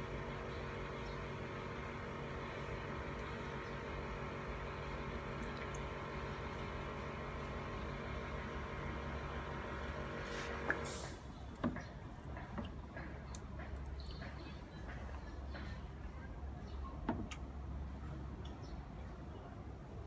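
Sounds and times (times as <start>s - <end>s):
small pump humming: 0.0s - 11.6s.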